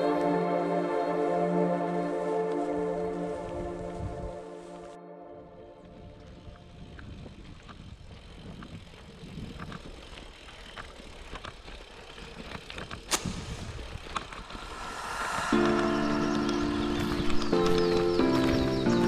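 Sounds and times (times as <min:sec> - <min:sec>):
bicycle tyres on gravel: 0:03.0 - 0:19.0
bike rattling: 0:05.8 - 0:14.7, 0:15.6 - 0:19.0.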